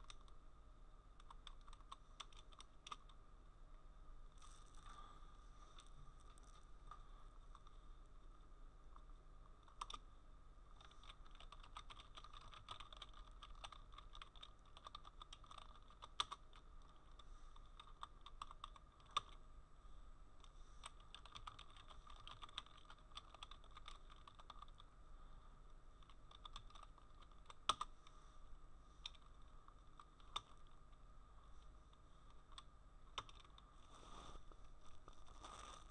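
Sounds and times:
low steady hum: 0.0s - 35.9s
keyboard typing: 1.2s - 3.2s, 9.6s - 10.1s, 10.8s - 19.4s, 20.8s - 24.9s, 26.0s - 28.0s, 29.0s - 30.8s, 32.3s - 33.6s.

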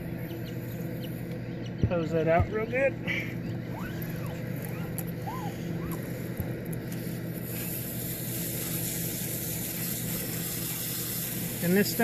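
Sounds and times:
steady low hum: 0.0s - 12.0s
hose spray hissing: 5.3s - 12.0s.

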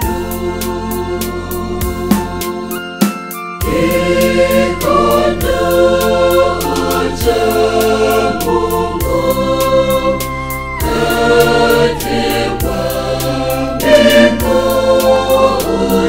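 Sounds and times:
choir singing: 0.0s - 2.8s, 3.6s - 16.0s
band backing track with beat: 0.0s - 3.6s.

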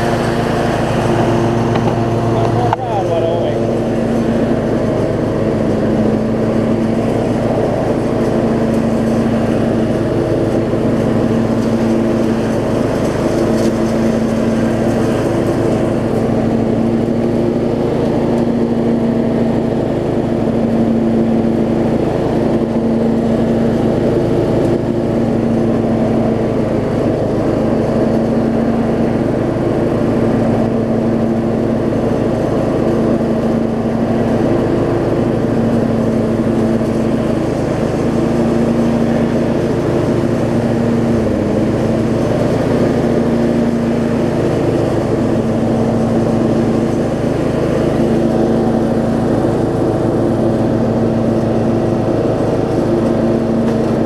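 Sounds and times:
lawn tractor engine running: 0.0s - 54.0s.

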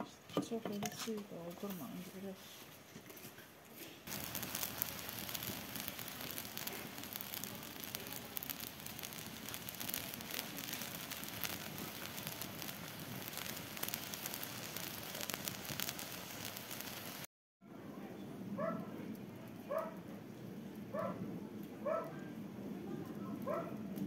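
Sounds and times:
wood fire crackling and popping: 4.0s - 17.3s, 19.0s - 21.8s, 22.4s - 24.0s
broth bubbling: 4.1s - 17.3s.

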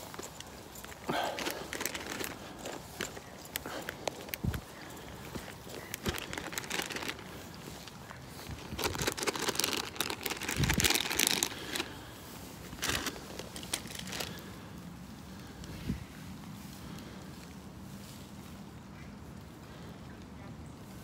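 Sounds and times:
crinkling and rustling: 0.0s - 16.0s.

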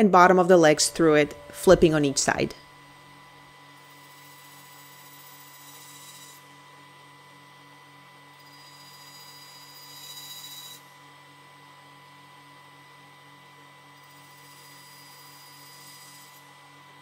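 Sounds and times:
bandsaw humming: 0.4s - 6.6s.

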